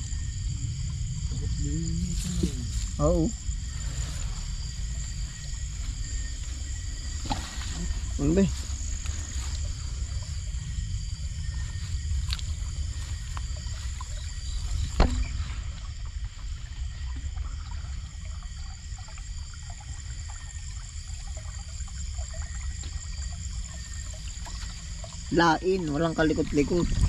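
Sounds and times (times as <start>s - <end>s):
night insects chirring: 0.0s - 27.0s
water sloshing from wading: 0.0s - 27.0s.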